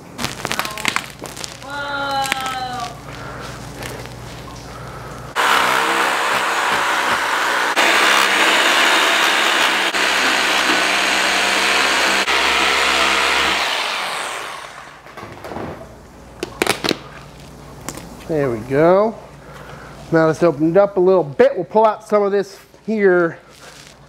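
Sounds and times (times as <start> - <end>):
reciprocating saw cutting: 5.3 - 15.0.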